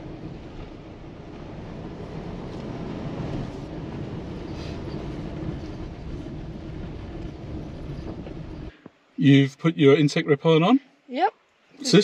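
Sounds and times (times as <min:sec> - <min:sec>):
vehicle rattling: 0:00.0 - 0:08.7
tyres rumbling on dirt track: 0:00.0 - 0:08.8.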